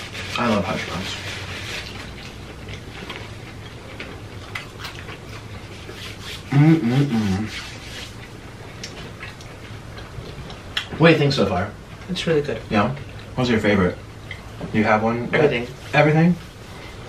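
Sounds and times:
people chewing food: 0:00.0 - 0:17.0
steady low hum: 0:00.0 - 0:17.0
person humming mmm: 0:06.4 - 0:07.7.

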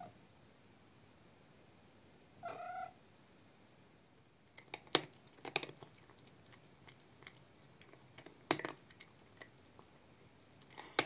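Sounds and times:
cat crunching dry kibble: 0:04.5 - 0:11.0.

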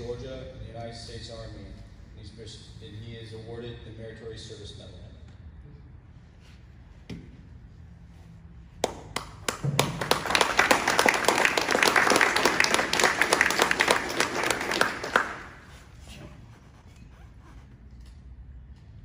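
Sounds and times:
people applauding: 0:08.8 - 0:15.8.

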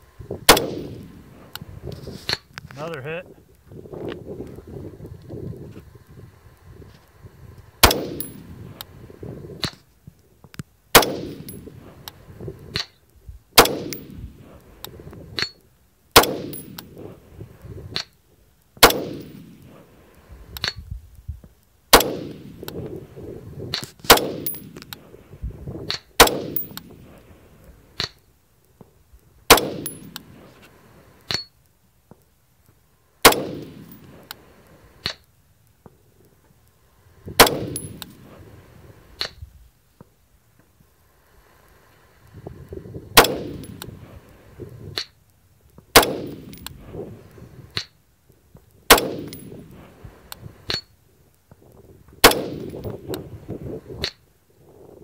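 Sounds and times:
rifle single shots with echo: 0:00.4 - 0:01.5, 0:07.8 - 0:09.0, 0:10.9 - 0:12.1, 0:13.6 - 0:14.8, 0:16.2 - 0:17.1, 0:18.8 - 0:19.9, 0:21.9 - 0:23.0, 0:24.0 - 0:25.2, 0:25.9 - 0:27.1, 0:29.5 - 0:30.5, 0:33.2 - 0:35.2, 0:37.4 - 0:38.2, 0:43.1 - 0:44.0, 0:45.9 - 0:47.2, 0:48.9 - 0:49.8, 0:52.2 - 0:53.2.

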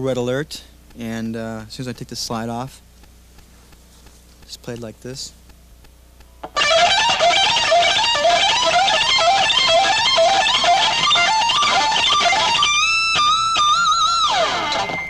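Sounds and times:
electric guitar lead run: 0:06.4 - 0:15.0.

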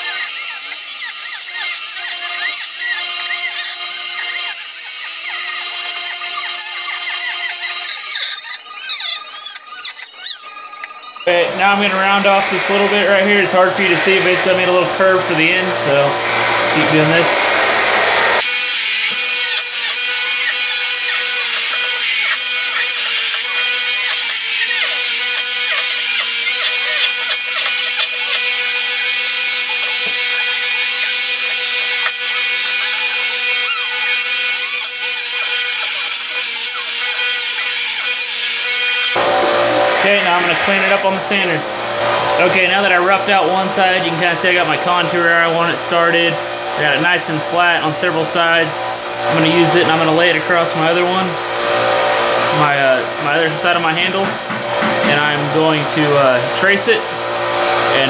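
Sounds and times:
rotary tool cutting wood: 0:00.0 - 0:14.8, 0:15.4 - 0:39.3.

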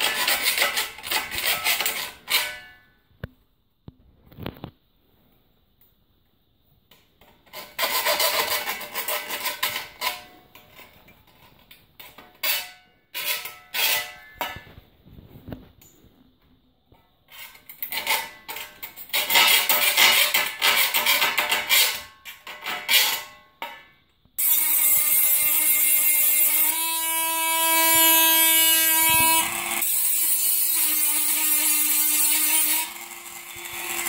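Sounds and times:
file rasping on metal: 0:00.0 - 0:02.6, 0:07.6 - 0:10.2.

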